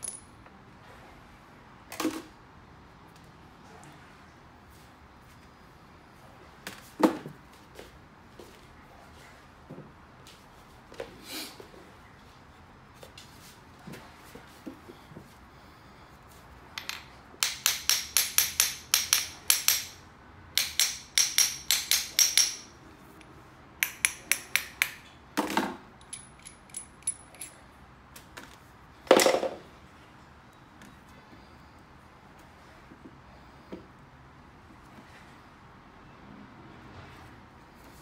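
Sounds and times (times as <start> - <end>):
mallet tapping metal block: 16.8 - 20.0, 20.6 - 22.7, 23.8 - 25.0.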